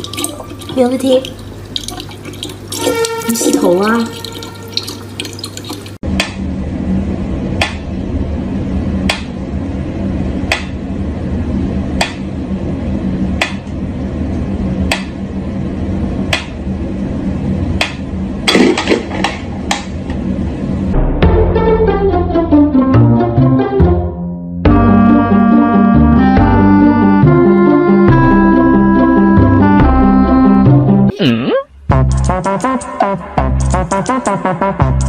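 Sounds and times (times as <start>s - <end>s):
tap water running: 0.0s - 6.0s
low steady hum: 0.0s - 22.5s.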